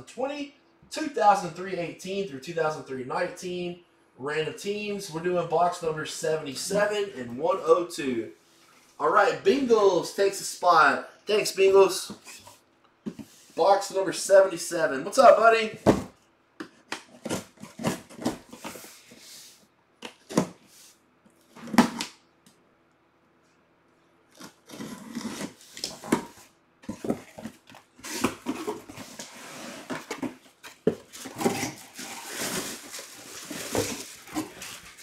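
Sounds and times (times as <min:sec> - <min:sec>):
box and plastic wrapping rustling: 0:24.3 - 0:35.0.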